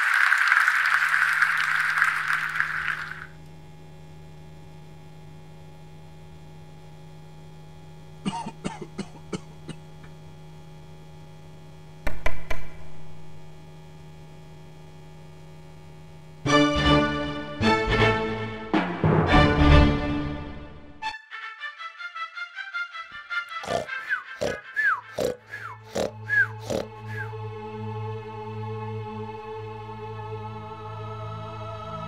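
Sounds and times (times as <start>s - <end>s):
low hum: 7.8s - 16.3s
music: 16.3s - 32.0s.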